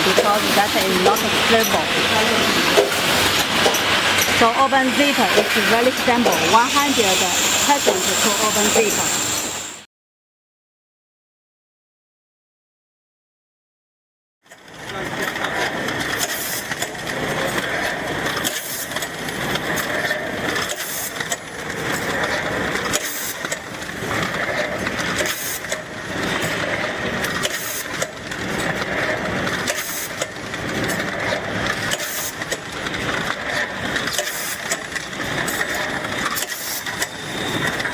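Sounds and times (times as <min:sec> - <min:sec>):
packing machine clattering: 0:00.0 - 0:06.8, 0:14.5 - 0:37.9.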